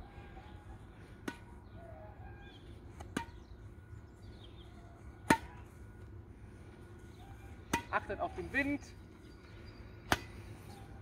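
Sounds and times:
birds chirping faintly: 0:00.0 - 0:11.0
racket striking shuttlecock: 0:01.2 - 0:01.6, 0:03.0 - 0:03.4, 0:05.2 - 0:05.7, 0:07.7 - 0:08.0, 0:10.1 - 0:10.4.

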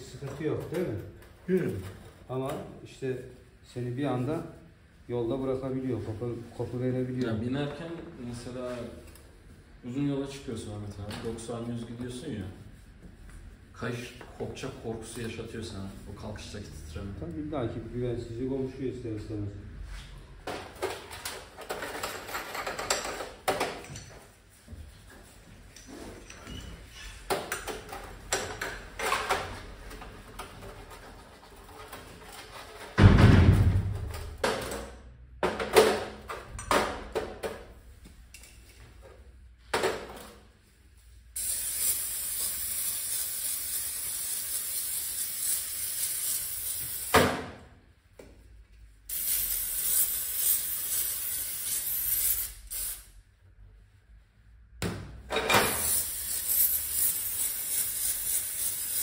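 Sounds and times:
heavy thump: 0:33.0 - 0:34.4
steady hissing spray: 0:41.4 - 0:47.1, 0:49.1 - 0:53.1, 0:55.8 - 0:59.0.

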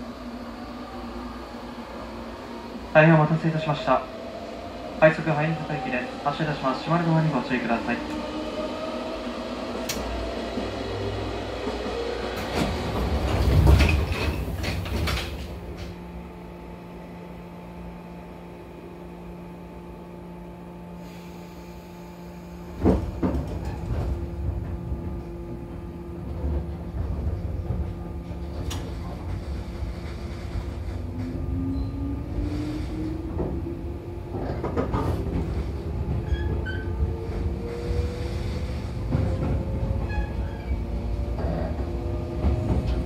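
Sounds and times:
train rumbling away: 0:00.0 - 0:43.0
train steady low hum: 0:00.0 - 0:43.0
train doors closing: 0:05.2 - 0:16.2, 0:21.0 - 0:43.0.

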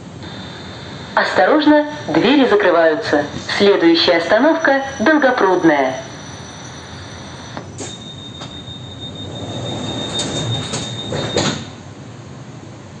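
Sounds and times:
train carriage hum: 0:00.0 - 0:13.0
high warning tone: 0:00.2 - 0:11.8
train doors thumping shut: 0:07.7 - 0:11.8.

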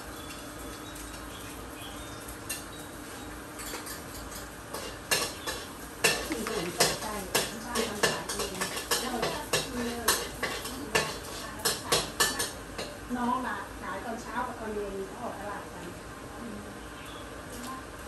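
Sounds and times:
metal spatula scraping a wok: 0:03.6 - 0:12.5.

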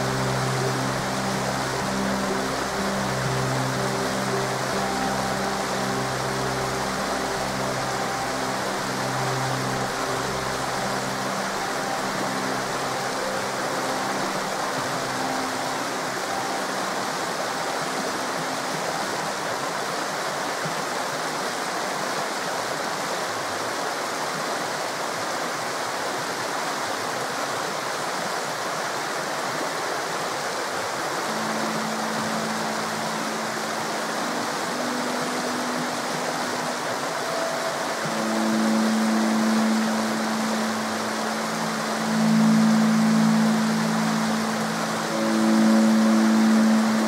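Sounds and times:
faint low music notes: 0:00.0 - 0:20.8, 0:31.0 - 0:47.0
river rushing: 0:00.0 - 0:47.0.

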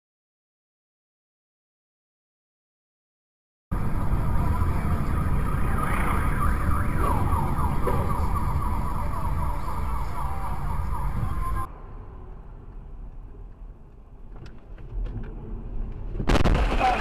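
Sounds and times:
siren wailing: 0:03.7 - 0:11.7
vehicle rumbling: 0:03.7 - 0:17.0.

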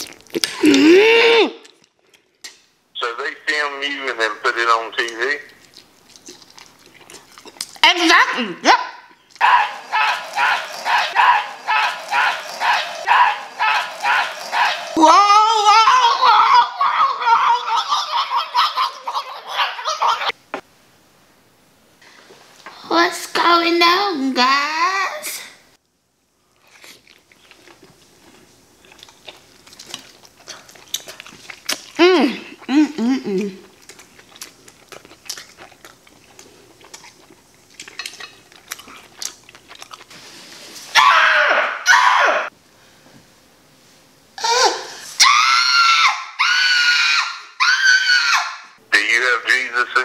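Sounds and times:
chewing crunches: 0:00.0 - 0:00.8, 0:01.6 - 0:02.6, 0:05.0 - 0:07.8, 0:26.6 - 0:32.8, 0:33.4 - 0:40.2
loud scream: 0:09.4 - 0:19.2, 0:40.9 - 0:42.5, 0:44.4 - 0:48.8
high-pitched squealing giggling voice: 0:13.6 - 0:20.4.

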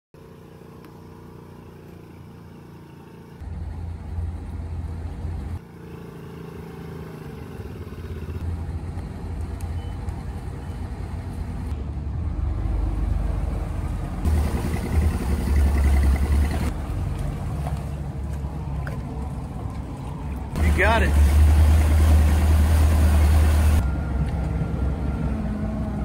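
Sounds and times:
boat engine running: 0:14.2 - 0:23.8.

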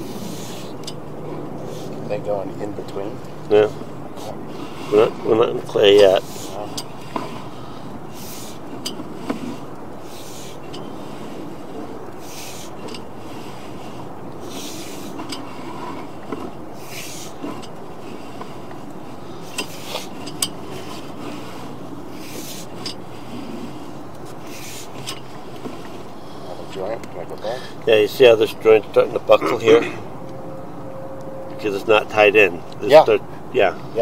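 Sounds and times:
cable rubbing and scraping in pipe: 0:00.0 - 0:26.8.

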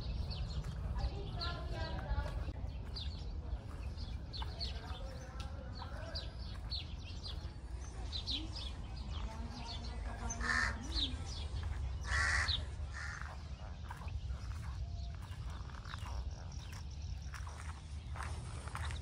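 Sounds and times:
small birds chirping: 0:00.0 - 0:19.0
crow cawing: 0:10.3 - 0:11.1, 0:12.0 - 0:13.4.

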